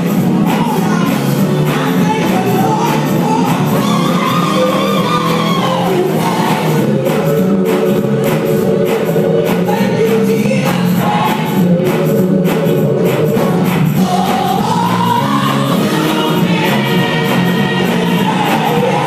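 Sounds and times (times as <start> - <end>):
gospel choir singing: 0.0 - 19.0
lead singer: 0.0 - 19.0
hand claps: 5.4 - 15.7.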